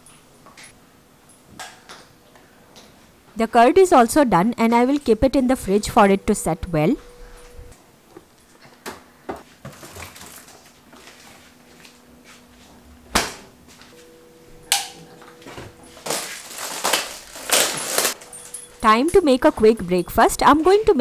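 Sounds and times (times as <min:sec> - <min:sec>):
handling noise: 0:13.9 - 0:21.0.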